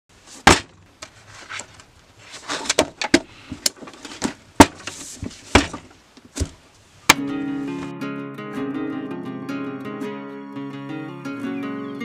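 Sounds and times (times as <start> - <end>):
paper rustling: 0.3 - 3.0.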